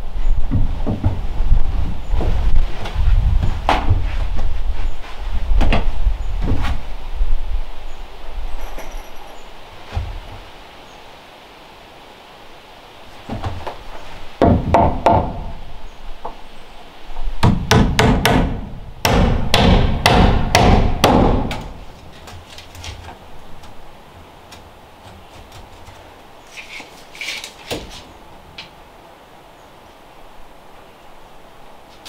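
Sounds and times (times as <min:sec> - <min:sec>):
hammer striking wooden frame: 0:14.4 - 0:15.6, 0:17.4 - 0:21.8.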